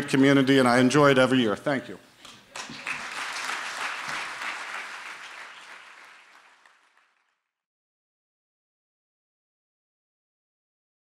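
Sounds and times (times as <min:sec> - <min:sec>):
audience applauding: 0:02.5 - 0:07.5.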